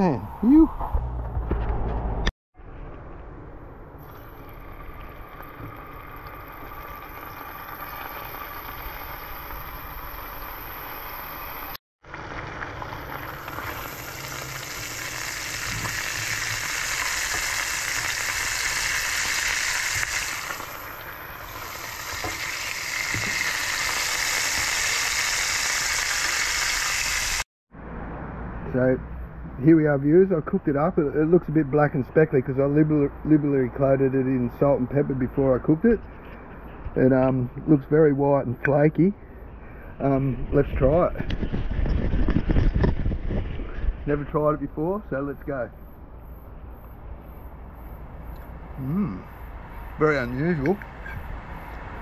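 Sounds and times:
fish frying in hot oil: 4.0s - 27.4s.

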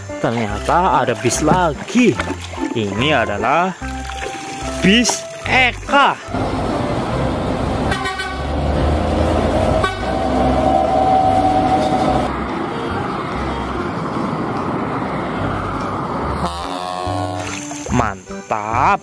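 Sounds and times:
bus engine and road noise: 0.0s - 19.0s
bus horn blasts: 7.8s - 8.6s, 9.4s - 12.3s.

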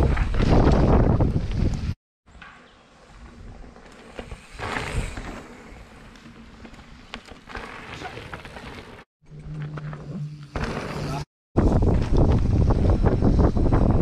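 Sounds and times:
wind noise: 0.0s - 2.0s, 11.6s - 14.0s
mountain bike rolling over dry leaves: 3.2s - 9.0s.

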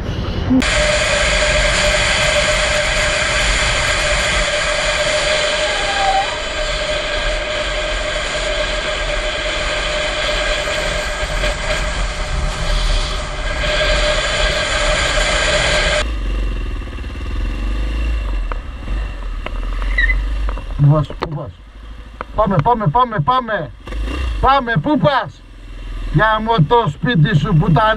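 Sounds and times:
motorcycle engine: 0.0s - 27.9s
constant tones: 18.5s - 27.9s.

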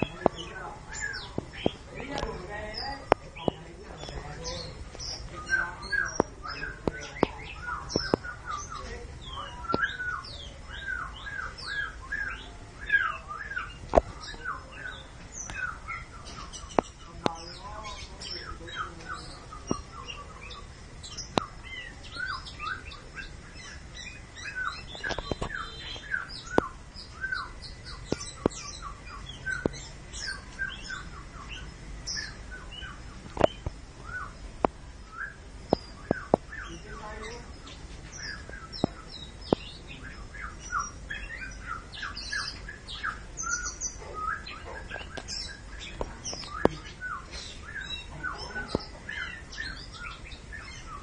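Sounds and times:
bird chirping and whistling: 4.5s - 17.0s, 18.2s - 34.4s, 35.0s - 51.0s.

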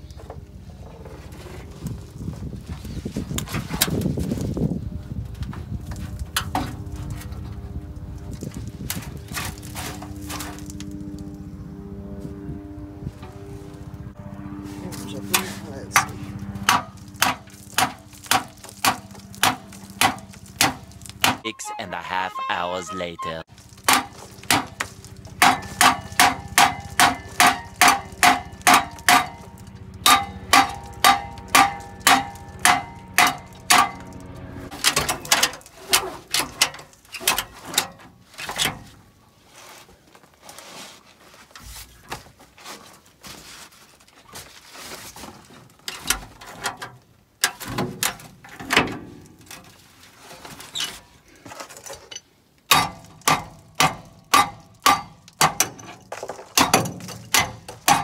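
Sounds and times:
hammer ringing on metal exhaust: 25.3s - 34.6s.

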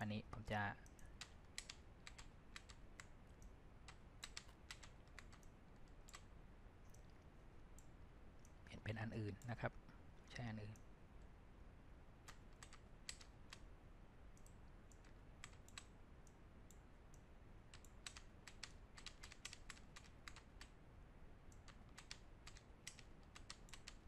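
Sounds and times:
computer mouse and keyboard clicking: 0.8s - 8.6s, 12.2s - 13.7s, 14.3s - 20.8s, 21.5s - 24.0s.

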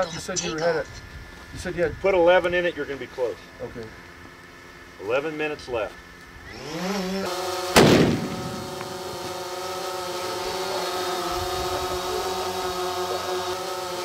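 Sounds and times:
drone propellers humming: 5.8s - 14.0s
rifle shot: 7.8s - 8.7s.

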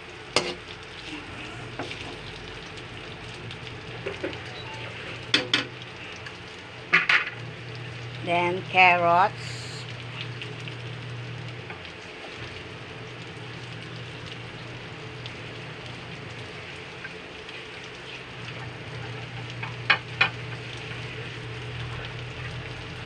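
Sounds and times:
food sizzling in a wok: 0.0s - 23.0s.

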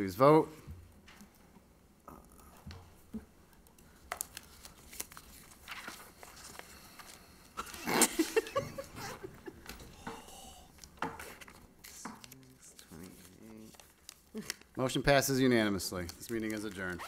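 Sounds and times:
paper rustling: 3.9s - 7.8s, 10.8s - 14.9s, 15.6s - 17.0s.

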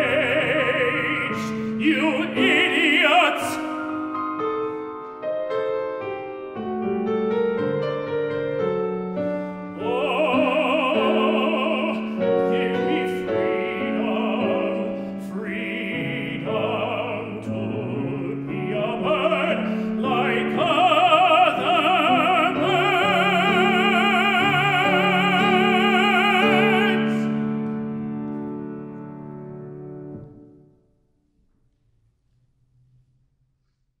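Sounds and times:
tenor singing with vibrato: 0.0s - 4.1s, 9.7s - 27.4s
grand piano accompaniment: 0.0s - 32.8s.

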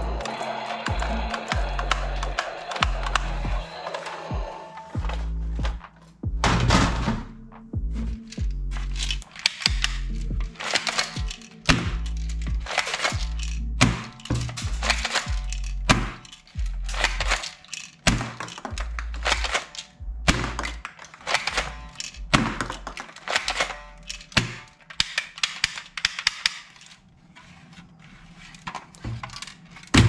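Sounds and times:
background music with bass line: 0.0s - 3.7s, 4.3s - 10.6s, 11.2s - 17.4s, 18.8s - 20.8s
plastic toy rifle knocks and clicks: 0.8s - 4.2s, 8.3s - 27.0s, 28.7s - 30.0s.

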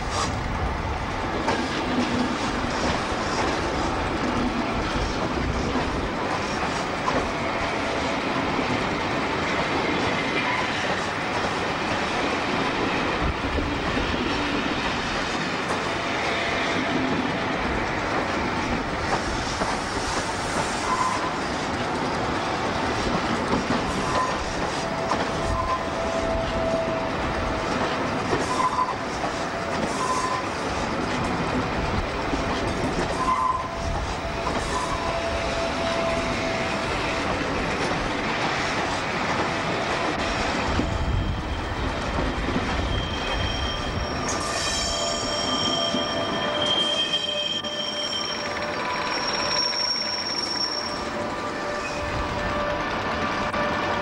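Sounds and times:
train coaches rumbling past: 0.0s - 54.0s
faint wheel squeals: 42.8s - 51.1s.

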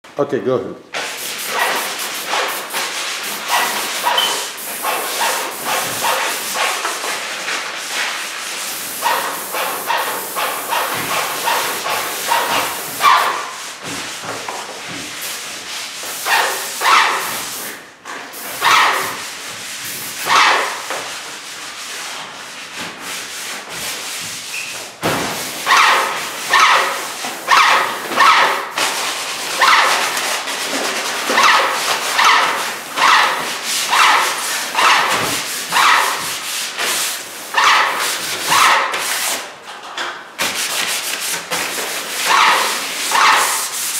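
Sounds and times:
paint sprayer hissing: 1.0s - 6.9s, 8.6s - 13.6s.

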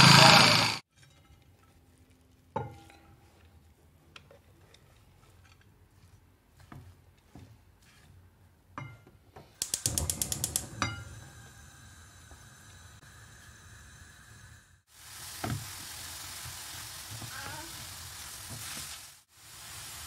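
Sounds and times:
stove igniter clicking rapidly: 9.6s - 10.8s
faint steady gas hiss: 9.6s - 20.0s.

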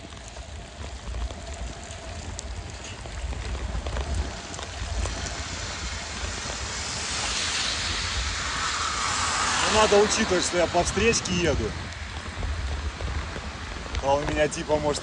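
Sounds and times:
rain hissing: 0.0s - 15.0s
wind rumbling on microphone: 0.0s - 15.0s
bicycle splashing through water: 2.8s - 13.8s.

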